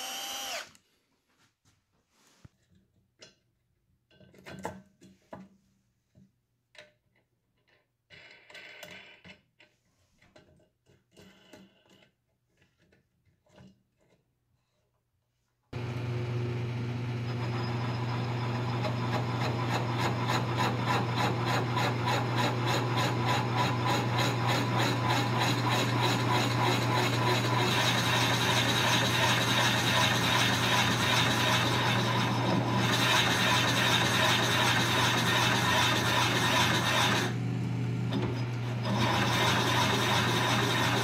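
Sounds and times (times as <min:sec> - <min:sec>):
drill bit rasping through wood: 0:00.0 - 0:00.8, 0:15.8 - 0:37.4, 0:38.6 - 0:41.0
drill press motor hum: 0:00.0 - 0:00.8, 0:15.8 - 0:41.0.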